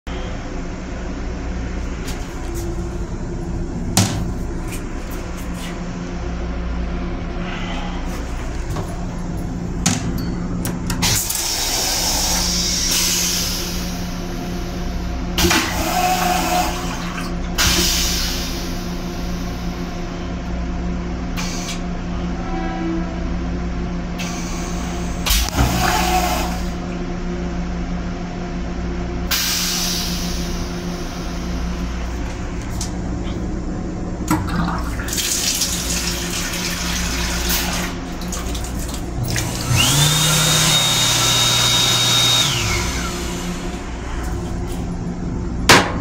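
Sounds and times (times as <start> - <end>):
steady low hum: 0.0 - 46.0
toilet flushing water hiss: 11.0 - 20.0, 24.2 - 26.8, 29.3 - 31.6, 34.5 - 44.2.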